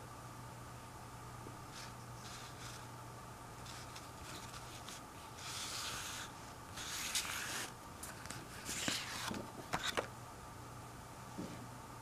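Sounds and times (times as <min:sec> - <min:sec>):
paper cards shuffling: 0:01.7 - 0:02.8, 0:03.6 - 0:10.1.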